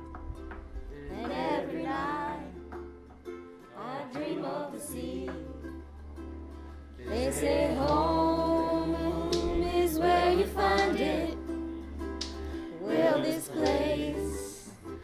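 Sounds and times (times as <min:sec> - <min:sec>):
group of voices singing: 0:01.1 - 0:02.8, 0:03.8 - 0:05.8, 0:07.0 - 0:15.0.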